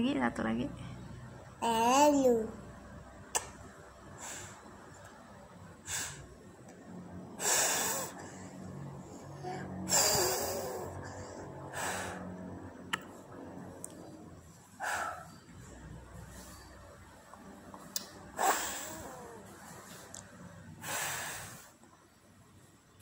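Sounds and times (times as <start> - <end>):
child blowing puffs of breath: 4.2 - 4.6, 5.8 - 6.3, 7.4 - 8.6, 9.8 - 12.4, 18.4 - 19.3, 20.8 - 21.8.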